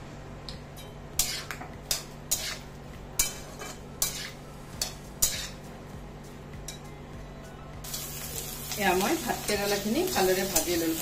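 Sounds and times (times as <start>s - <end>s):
spatula scraping a pan: 1.2s - 5.6s.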